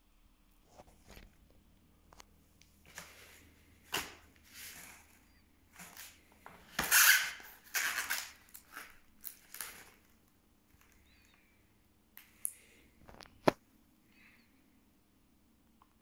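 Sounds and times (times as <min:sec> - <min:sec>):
cable rustling in foam tray: 0:02.8 - 0:11.0.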